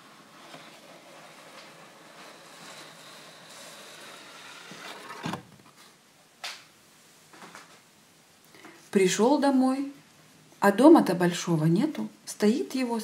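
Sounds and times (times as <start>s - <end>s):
card scraping along wooden frame: 0.0s - 5.6s.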